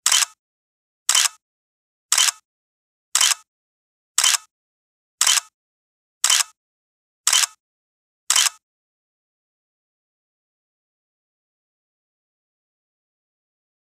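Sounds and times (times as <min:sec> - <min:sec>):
camera shutter clicks: 0:00.0 - 0:00.4, 0:01.1 - 0:01.4, 0:02.1 - 0:02.4, 0:03.2 - 0:03.4, 0:04.2 - 0:04.5, 0:05.2 - 0:05.5, 0:06.2 - 0:06.5, 0:07.3 - 0:07.6, 0:08.3 - 0:08.6.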